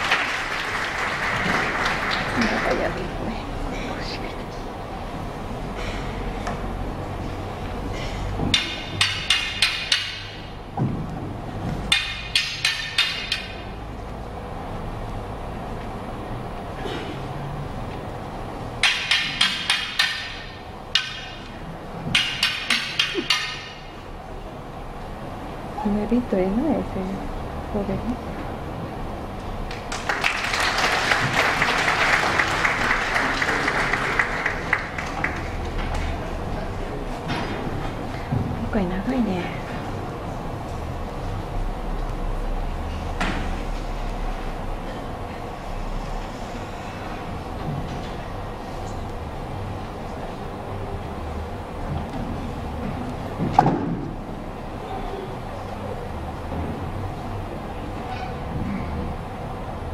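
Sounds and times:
audience applauding: 0:00.0 - 0:03.3, 0:29.6 - 0:36.2
wooden sword and staff clacking: 0:08.4 - 0:10.5, 0:11.8 - 0:13.7, 0:18.8 - 0:23.9.

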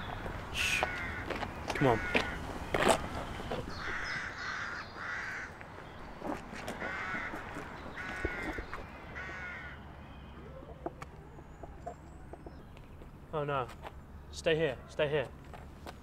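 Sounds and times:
crows cawing: 0:00.6 - 0:02.4, 0:03.7 - 0:12.4.

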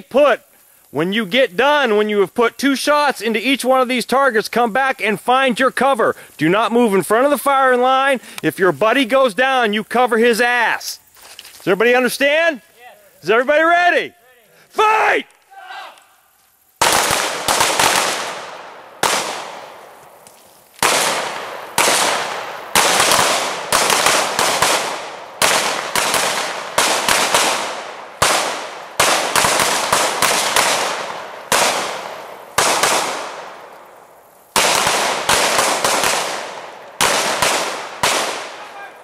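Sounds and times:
pistol shots with echo: 0:16.8 - 0:19.8, 0:20.8 - 0:33.6, 0:34.6 - 0:38.9.

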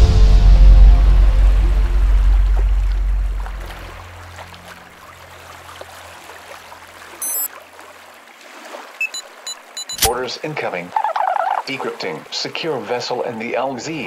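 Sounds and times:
watery shore hiss: 0:01.8 - 0:14.0
high electronic chirp: 0:07.2 - 0:07.5, 0:09.0 - 0:10.2
small electronic beeps: 0:07.2 - 0:07.5, 0:09.0 - 0:10.2.

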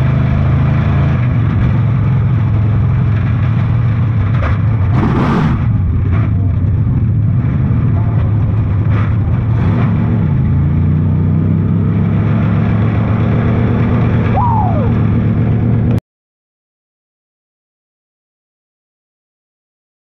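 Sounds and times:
race car engine: 0:00.0 - 0:16.0
high falling squeal: 0:14.3 - 0:15.0.

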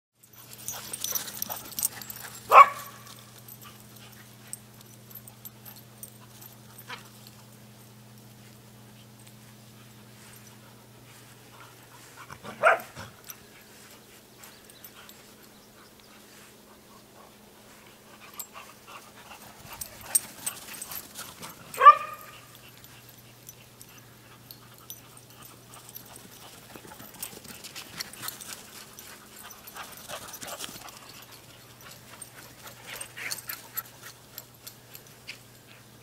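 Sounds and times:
dog barking: 0:02.5 - 0:03.1, 0:12.5 - 0:13.0, 0:21.8 - 0:22.4
dog yipping: 0:21.8 - 0:22.4.

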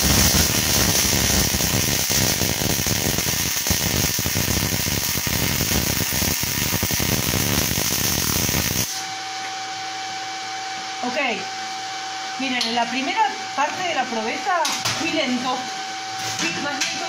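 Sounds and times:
welding arc crackling buzz: 0:00.0 - 0:09.5.

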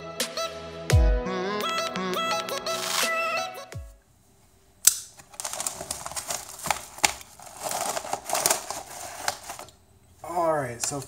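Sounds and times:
paper ripping and crinkling: 0:05.2 - 0:09.8.

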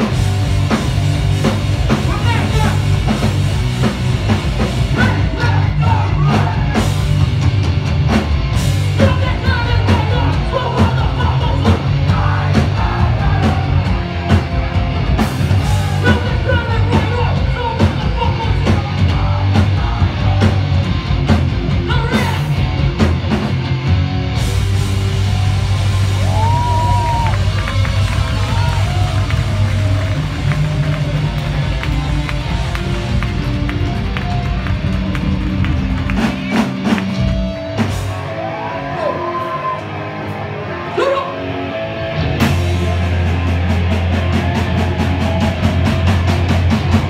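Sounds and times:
punk band playing live: 0:00.0 - 0:47.0
shouted vocals: 0:04.9 - 0:07.0, 0:09.0 - 0:14.0, 0:38.1 - 0:41.6.

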